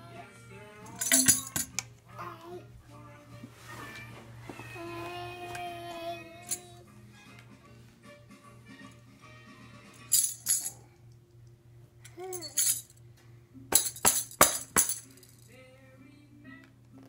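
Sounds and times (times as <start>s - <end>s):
toy tambourine jingling: 0.8s - 1.8s, 6.4s - 6.7s, 10.0s - 10.9s, 12.1s - 13.0s, 13.7s - 15.6s.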